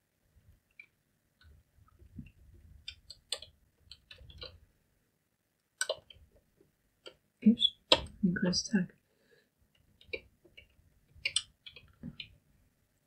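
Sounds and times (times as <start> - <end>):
keyboard keys clicking: 5.8 - 6.2.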